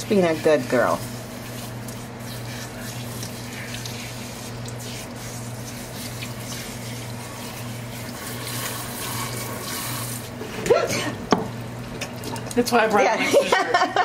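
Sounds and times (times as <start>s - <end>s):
water spraying into steel sink: 0.0s - 11.1s.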